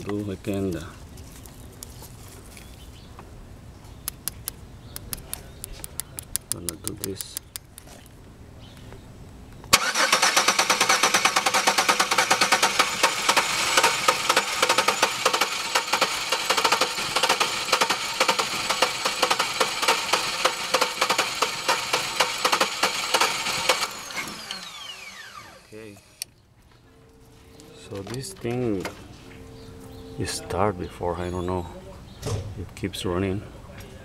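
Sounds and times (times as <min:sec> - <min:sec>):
engine cranking on starter: 0:09.7 - 0:26.2
starter spinning down whine: 0:09.7 - 0:26.2.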